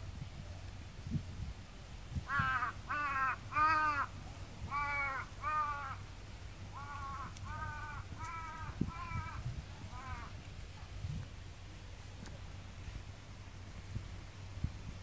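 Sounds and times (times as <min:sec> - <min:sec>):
crow cawing: 0:02.3 - 0:04.1, 0:04.7 - 0:06.0, 0:06.8 - 0:09.4, 0:10.0 - 0:10.3.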